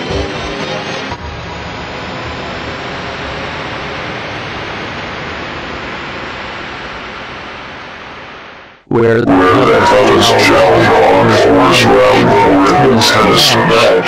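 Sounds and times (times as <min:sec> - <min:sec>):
static hiss: 0:01.7 - 0:08.8.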